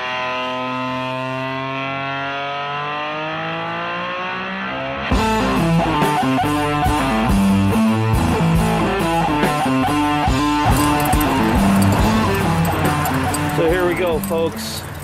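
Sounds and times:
drums and guitar riff: 0:05.1 - 0:14.6.

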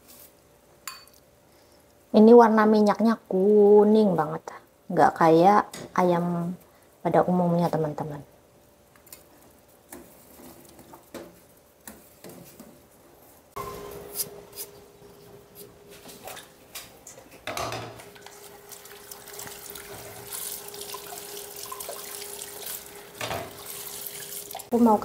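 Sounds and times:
tap water running into sink: 0:18.0 - 0:24.7.

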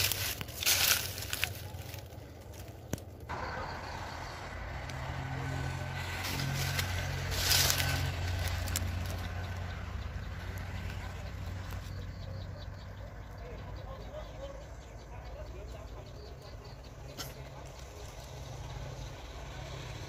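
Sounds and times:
dry leaves brushing camera: 0:00.0 - 0:03.1, 0:05.9 - 0:09.6
vehicle engine passing by: 0:03.3 - 0:20.0.

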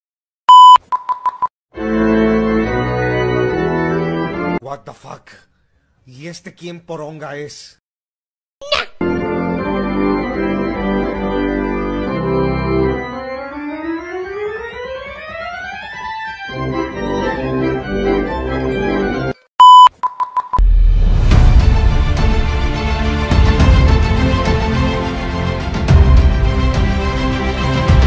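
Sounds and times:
short beeps: 0:00.5 - 0:01.5, 0:19.6 - 0:20.6
organ chords: 0:01.8 - 0:04.6, 0:09.0 - 0:19.4
loud steady beep: 0:19.6 - 0:20.6
loud music: 0:20.7 - 0:28.0.

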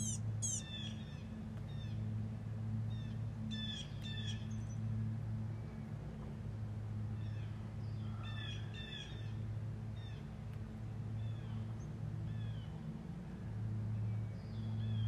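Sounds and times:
turkey yelps: 0:00.0 - 0:00.7
steady low hum: 0:00.0 - 0:15.0.

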